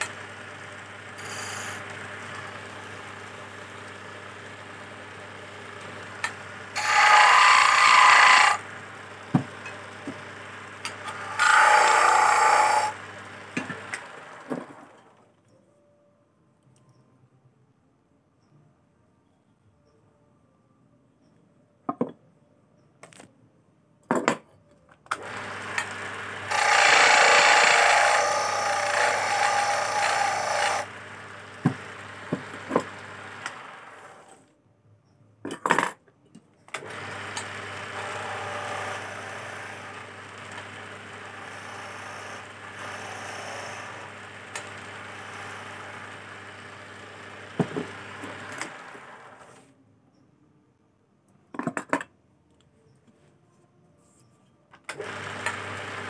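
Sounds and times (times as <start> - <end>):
chisel cutting wood: 1.2 - 2.5, 6.2 - 14.7, 25.2 - 34.2, 36.8 - 49.2
wood lathe humming: 4.5 - 15.0, 25.2 - 34.2, 36.8 - 49.5.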